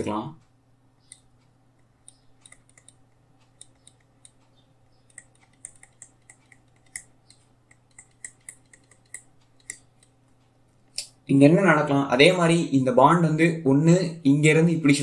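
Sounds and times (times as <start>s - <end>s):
faint low hum: 0.0s - 15.0s
stylus tapping on screen: 1.0s - 11.2s.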